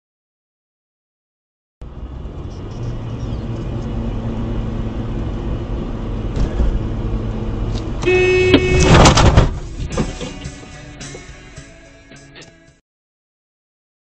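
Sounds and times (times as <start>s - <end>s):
car engine and road noise: 1.8s - 12.8s
loud horn: 8.0s - 9.2s.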